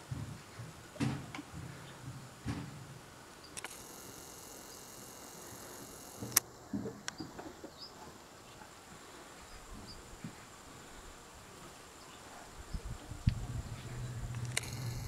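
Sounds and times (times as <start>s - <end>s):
sharp click: 3.6s - 3.9s, 14.4s - 15.0s
camcorder zoom motor whining: 3.6s - 6.4s, 14.4s - 15.0s.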